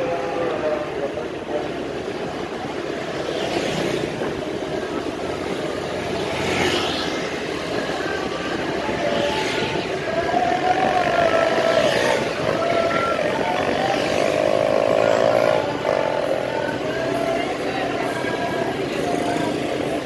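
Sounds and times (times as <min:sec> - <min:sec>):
road and engine noise: 0:00.0 - 0:20.0
vehicles passing: 0:00.0 - 0:20.0.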